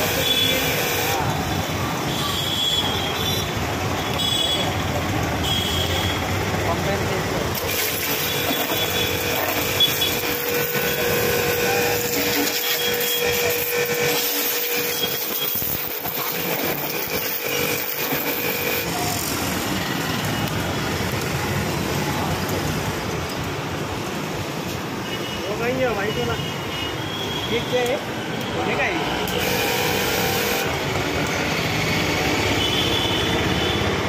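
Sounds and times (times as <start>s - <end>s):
pump whine: 0.0s - 1.9s, 7.5s - 21.6s, 29.2s - 32.8s
pressure washer water jet hissing: 7.4s - 19.9s, 29.2s - 30.8s.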